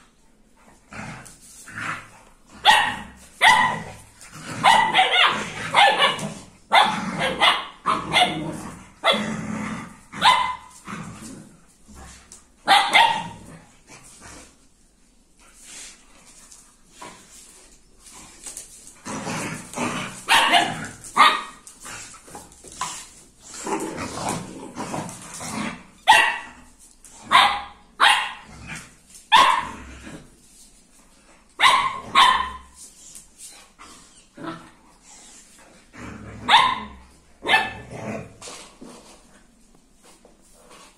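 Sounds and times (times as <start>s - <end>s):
dog barking: 2.6s - 3.9s, 4.6s - 8.4s, 10.2s - 10.7s, 12.7s - 13.4s, 20.3s - 21.6s, 26.1s - 26.6s, 27.3s - 28.4s, 29.3s - 29.7s, 31.6s - 32.7s, 36.5s - 37.8s.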